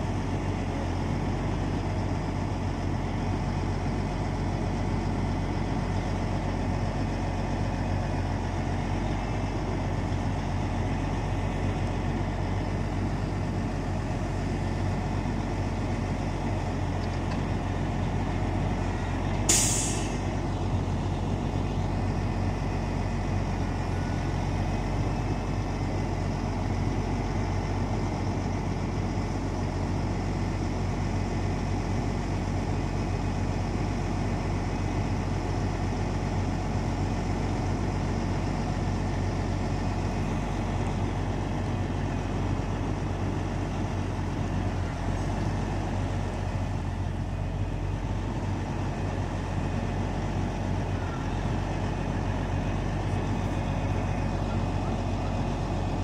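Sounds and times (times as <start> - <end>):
diesel truck engine running: 0.0 - 56.0
air hiss: 19.5 - 20.2.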